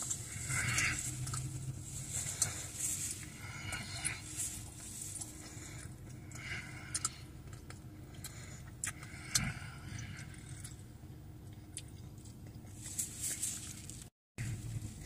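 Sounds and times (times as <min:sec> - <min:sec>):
man chewing food: 0:00.0 - 0:15.0
wet mouth smacks and clicks: 0:06.9 - 0:09.5.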